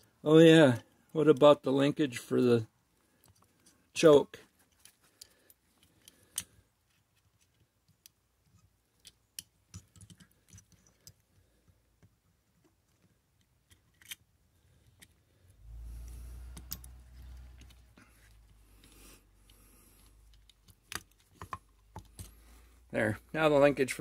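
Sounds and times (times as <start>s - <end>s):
small metal parts clicking: 4.7s - 11.4s, 12.9s - 15.2s, 16.5s - 19.0s.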